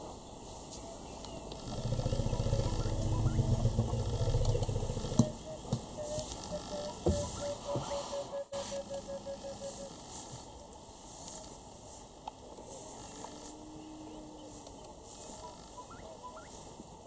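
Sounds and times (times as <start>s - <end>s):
bush ambience: 0.0s - 17.0s
elephant low rumble: 1.4s - 12.1s.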